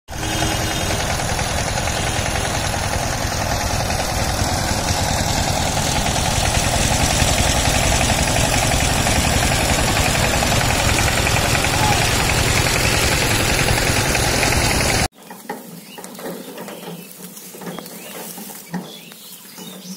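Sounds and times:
diesel engine knocking steadily: 0:00.1 - 0:15.1.

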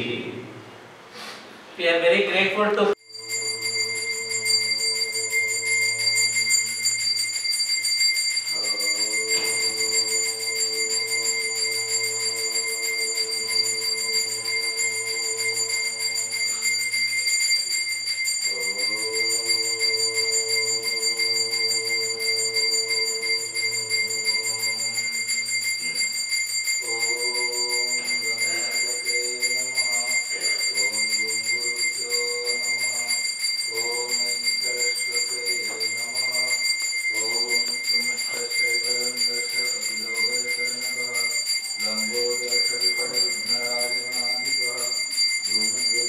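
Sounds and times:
hand bell ringing: 0:03.0 - 0:46.0
voices chanting: 0:08.5 - 0:17.2, 0:18.5 - 0:25.3.

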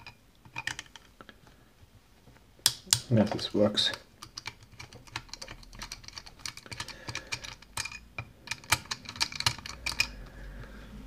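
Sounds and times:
screwdriver prying and scraping: 0:00.0 - 0:01.1, 0:02.7 - 0:10.3
small irregular clicks: 0:03.9 - 0:10.7.

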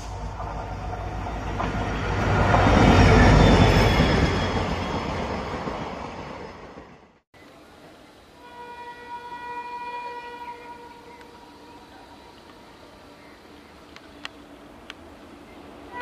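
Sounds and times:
train wheels rumbling on rails: 0:00.0 - 0:07.2.

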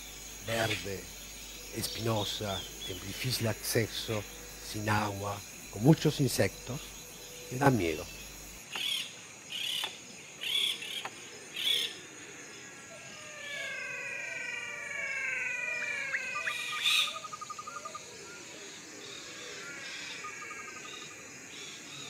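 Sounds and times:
high insect drone: 0:00.0 - 0:22.0
long falling whistled calls: 0:13.3 - 0:18.4.

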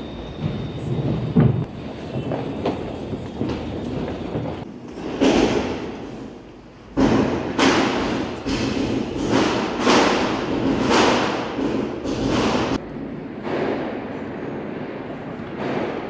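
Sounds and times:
firecrackers banging: 0:00.4 - 0:16.0.

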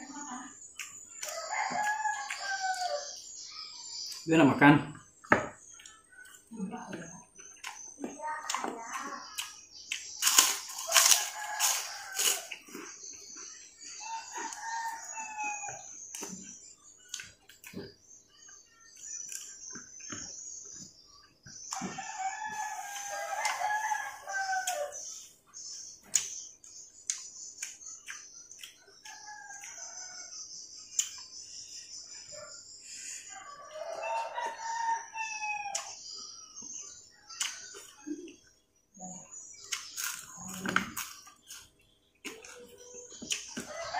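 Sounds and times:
crunchy chewing of food: 0:00.6 - 0:03.3, 0:07.1 - 0:31.6, 0:36.8 - 0:43.9
rooster crowing: 0:01.2 - 0:03.2, 0:10.8 - 0:12.6, 0:14.0 - 0:15.8, 0:21.7 - 0:25.0, 0:33.3 - 0:36.0, 0:43.6 - 0:43.9
person eating by hand: 0:09.2 - 0:15.2, 0:39.5 - 0:43.7.

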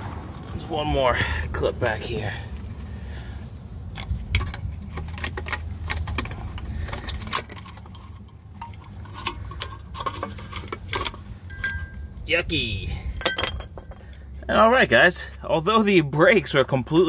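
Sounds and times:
low steady rumble: 0:00.0 - 0:17.0
screwdriver scraping metal: 0:04.4 - 0:12.0.

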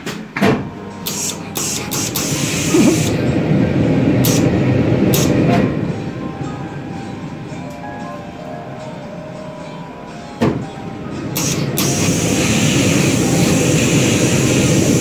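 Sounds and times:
iron rubbing over fabric: 0:01.1 - 0:03.2, 0:11.4 - 0:15.0.

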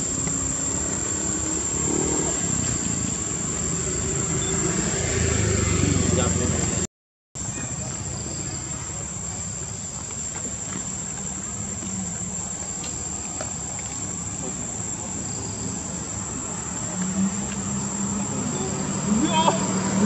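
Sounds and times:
high-pitched insect drone: 0:00.0 - 0:06.7, 0:10.8 - 0:20.0.

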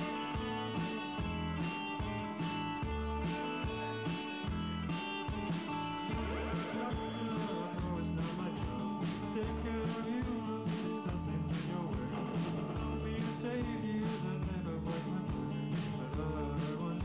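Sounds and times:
bass guitar: 0:00.0 - 0:17.0
drum and cymbal hits: 0:00.0 - 0:17.0
electric guitars: 0:00.0 - 0:17.0.

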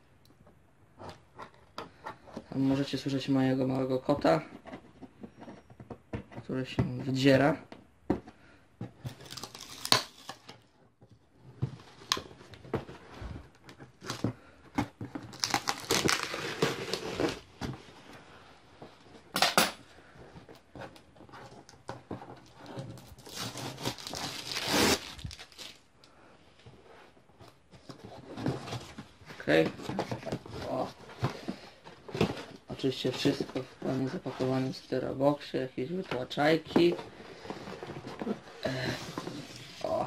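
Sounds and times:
packing tape ripping: 0:09.2 - 0:10.4, 0:15.3 - 0:17.4, 0:23.2 - 0:25.8
cardboard box crinkling and scraping: 0:11.4 - 0:18.3, 0:20.1 - 0:25.8, 0:26.8 - 0:35.2, 0:35.9 - 0:40.0.

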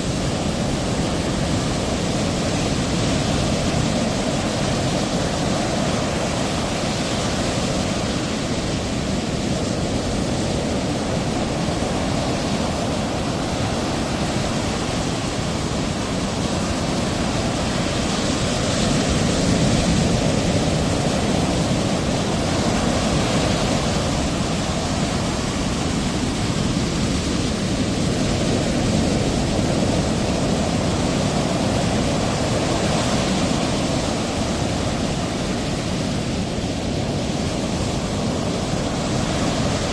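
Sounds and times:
ocean surf breaking: 0:00.0 - 0:39.9.

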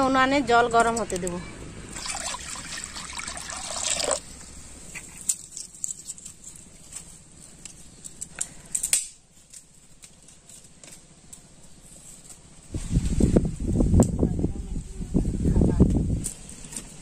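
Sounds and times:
water pouring into metal wok: 0:01.9 - 0:04.2.

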